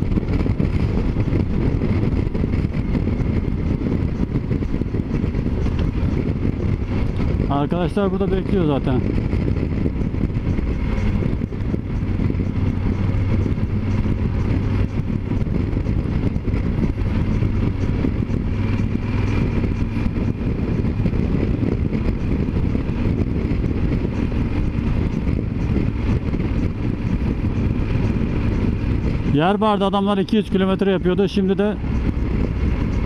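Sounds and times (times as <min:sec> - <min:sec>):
motorcycle engine cruising: 0:00.0 - 0:33.0
wind rushing over microphone: 0:00.0 - 0:33.0.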